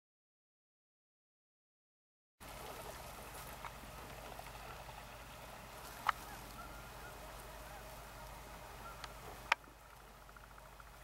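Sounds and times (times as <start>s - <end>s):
distant geese honking: 2.4s - 11.0s
ducks calling: 2.4s - 11.0s.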